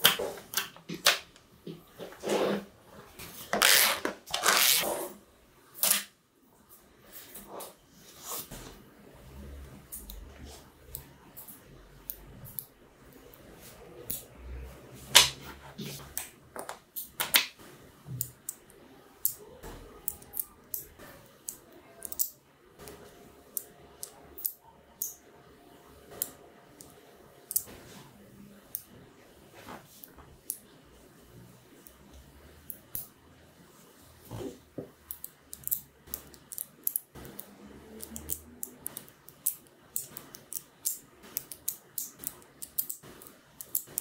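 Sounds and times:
magnetic balls clicking: 0:35.0 - 0:44.0.

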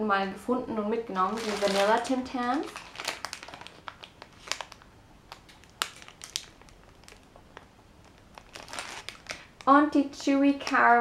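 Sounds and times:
plastic wrappers crinkling: 0:01.2 - 0:09.8.

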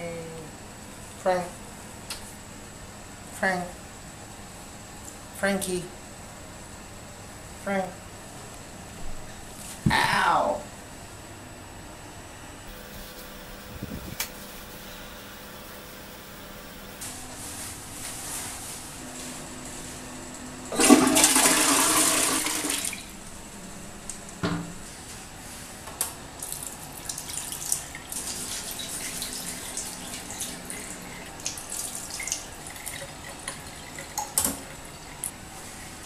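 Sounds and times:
toilet flushing: 0:20.7 - 0:23.2, 0:26.4 - 0:36.0.

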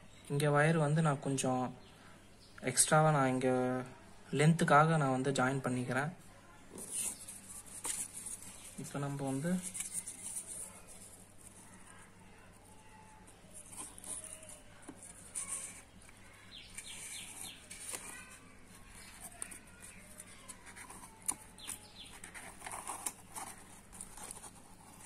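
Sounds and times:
cardboard rustling and clicks: 0:06.7 - 0:11.8, 0:13.2 - 0:25.0
faint bird calls: 0:09.6 - 0:24.3.

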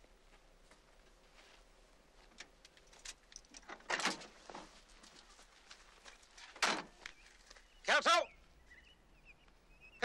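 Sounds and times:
clicks and rustles: 0:02.2 - 0:07.6.

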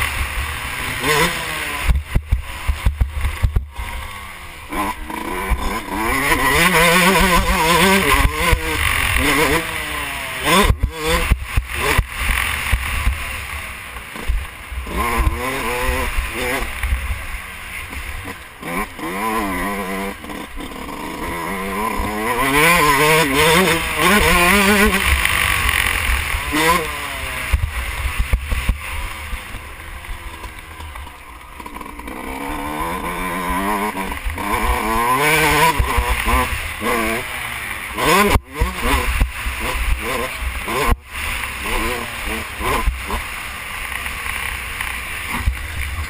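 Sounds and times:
motocross bike engine revving: 0:00.0 - 0:46.0.

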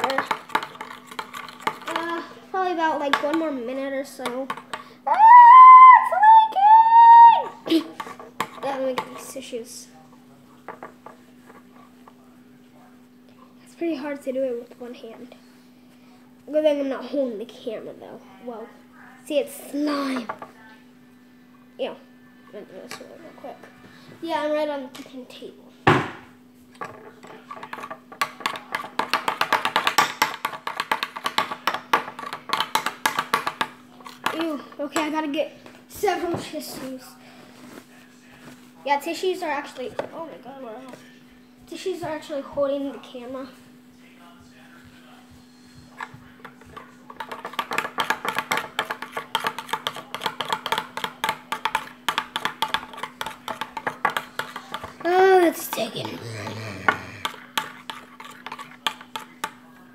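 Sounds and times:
spoon stirring slime: 0:00.0 - 0:04.8, 0:07.7 - 0:09.7, 0:44.6 - 0:59.7.

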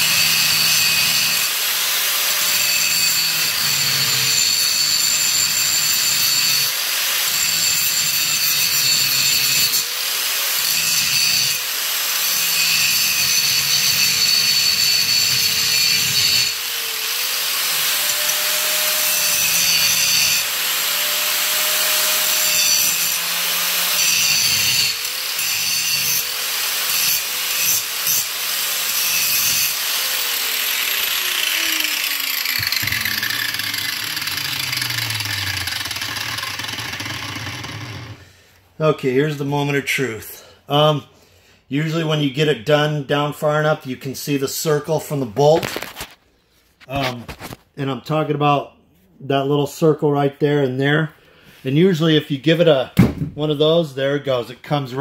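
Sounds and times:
angle grinder grinding metal: 0:00.0 - 0:38.2.

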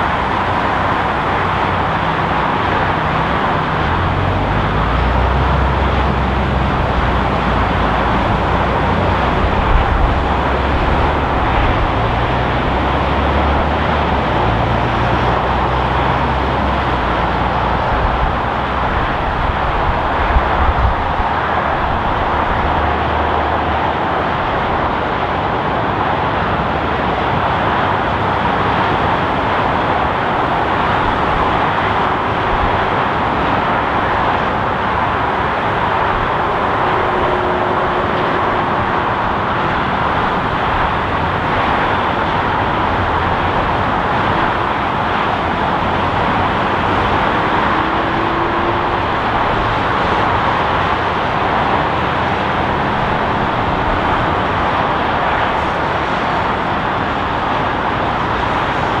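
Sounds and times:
jet engine rushing: 0:28.0 - 0:59.0.

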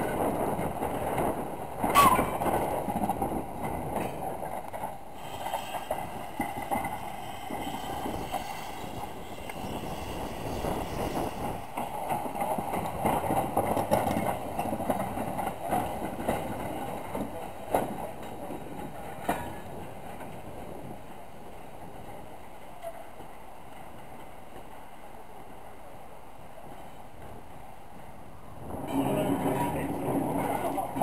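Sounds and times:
train rumbling and clanking on rails: 0:00.0 - 0:31.0
steam locomotive exhaust chuffing: 0:05.1 - 0:12.2.

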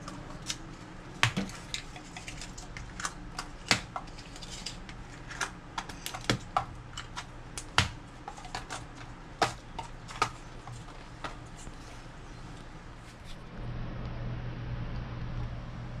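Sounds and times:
low steady hum: 0:00.0 - 0:16.0.

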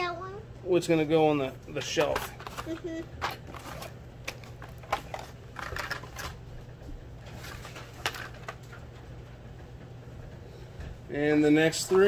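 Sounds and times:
card rustling: 0:01.8 - 0:06.5, 0:07.2 - 0:08.8.

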